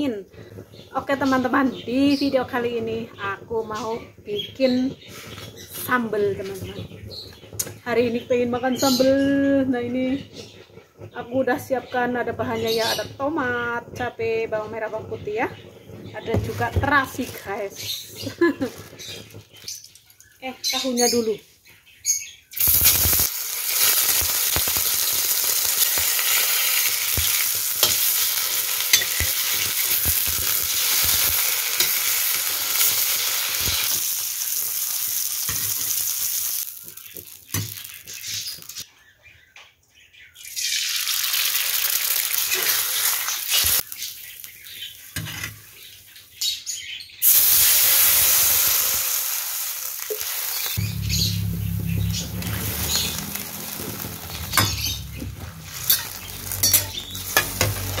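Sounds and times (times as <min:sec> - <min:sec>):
tofu sizzling in hot oil: 0:22.5 - 0:38.8, 0:40.5 - 0:45.4, 0:47.2 - 0:51.1, 0:52.4 - 0:58.0.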